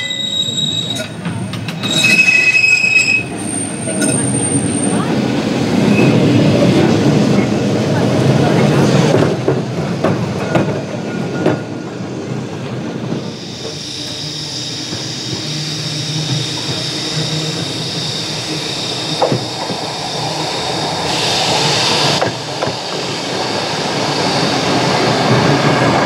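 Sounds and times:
high-pitched wheel squeal: 0:00.0 - 0:01.2, 0:01.8 - 0:05.0
tram rumble: 0:00.0 - 0:26.0
tram wheels clicking over rail joints: 0:19.2 - 0:19.9, 0:21.5 - 0:26.0.

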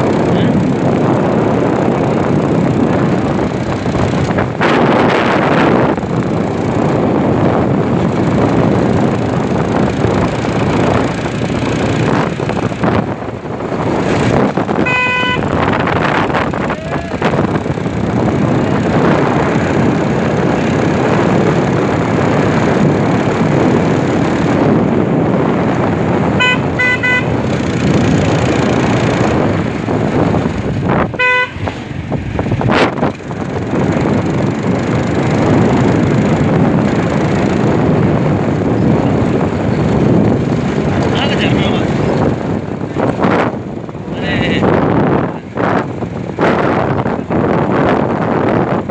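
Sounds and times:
loud rushing noise: 0:00.0 - 0:48.9
vehicle horn honking: 0:14.8 - 0:15.6, 0:26.4 - 0:27.4, 0:31.1 - 0:31.7.

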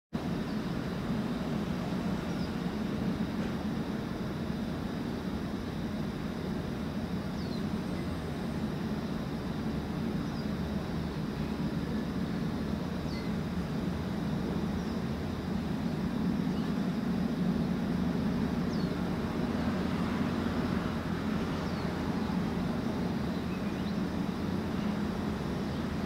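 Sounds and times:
ship diesel engine drone: 0:00.2 - 0:26.0.

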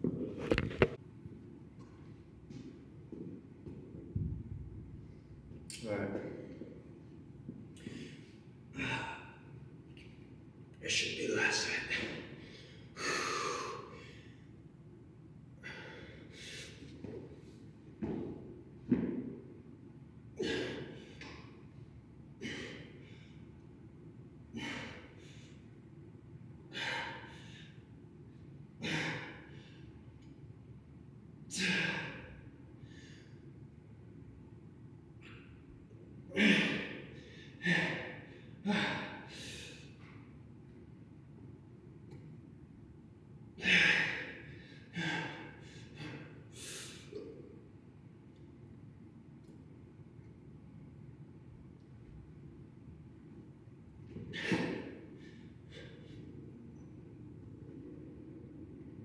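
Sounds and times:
man breathing hard: 0:07.8 - 0:09.6, 0:12.0 - 0:14.5, 0:15.6 - 0:17.2, 0:22.4 - 0:23.5, 0:24.6 - 0:25.7, 0:26.7 - 0:27.9, 0:31.6 - 0:33.4, 0:43.6 - 0:47.3, 0:54.2 - 0:56.4.

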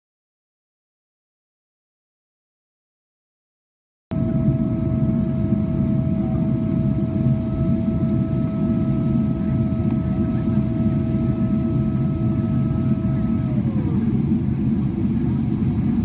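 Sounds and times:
aircraft cabin rumble: 0:04.1 - 0:16.0
thin steady whine: 0:04.2 - 0:16.0.

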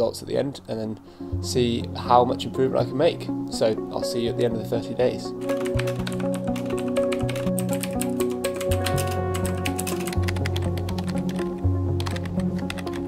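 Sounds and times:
background music with bass line: 0:01.3 - 0:13.0
fast keyboard typing: 0:05.4 - 0:13.0.

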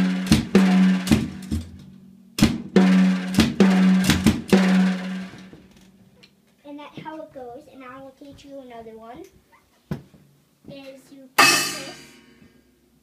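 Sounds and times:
drums hit with sticks: 0:00.0 - 0:05.7, 0:11.4 - 0:12.5
drums ringing hum: 0:00.0 - 0:05.8, 0:11.4 - 0:12.5.

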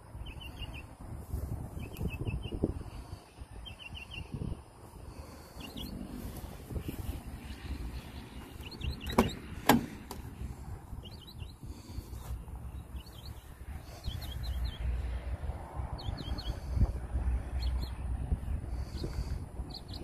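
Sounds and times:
small birds chirping: 0:00.0 - 0:20.0
car door latch clicks: 0:09.0 - 0:10.3.

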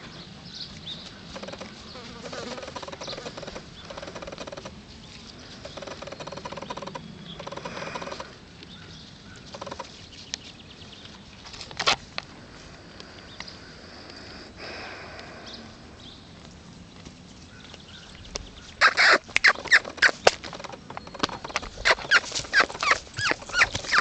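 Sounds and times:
flies buzzing: 0:01.4 - 0:04.7.

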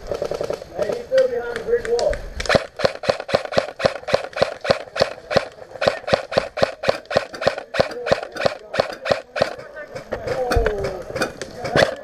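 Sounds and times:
airsoft rifle firing: 0:02.4 - 0:12.0.

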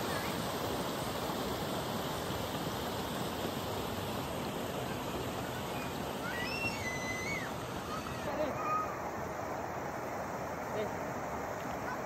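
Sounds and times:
river rushing over stones: 0:00.0 - 0:12.0.

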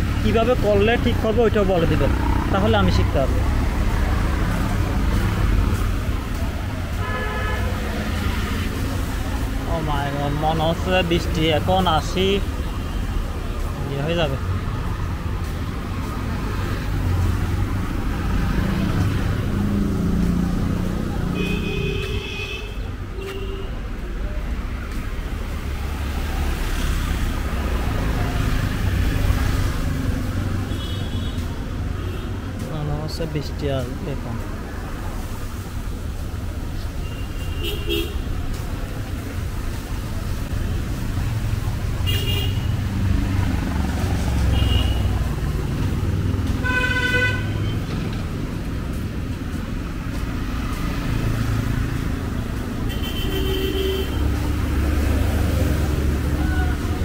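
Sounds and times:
vehicle engine rumble: 0:00.0 - 0:07.0, 0:37.6 - 0:57.0
road noise: 0:00.0 - 0:57.0
vehicles passing: 0:00.0 - 0:57.0.

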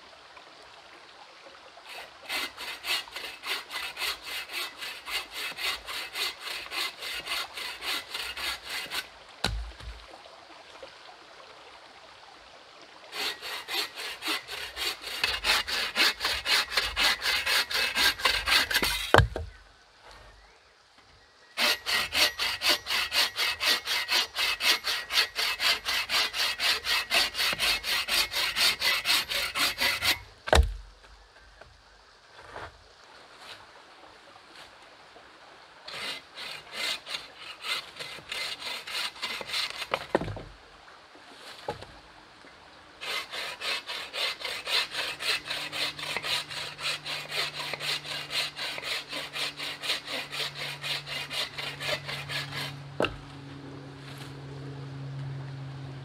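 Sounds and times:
bow saw rasping through log: 0:01.9 - 0:10.0, 0:13.1 - 0:19.5, 0:21.6 - 0:30.8, 0:35.9 - 0:40.4, 0:43.0 - 0:53.3.

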